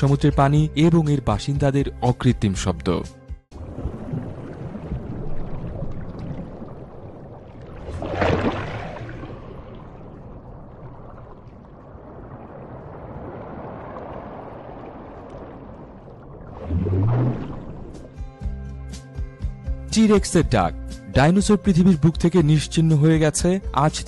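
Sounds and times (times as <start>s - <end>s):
surging water whoosh: 3.5s - 18.3s
underwater water noise: 3.5s - 18.5s.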